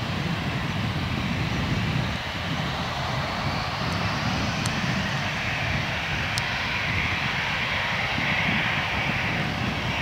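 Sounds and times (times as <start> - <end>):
jet engines rumbling: 0.0 - 10.0.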